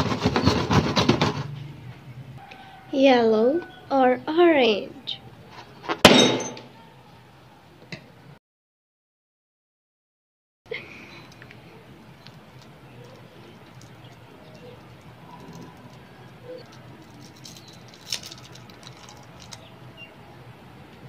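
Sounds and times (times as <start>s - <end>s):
cellophane wrappers crinkling: 12.2s - 19.7s.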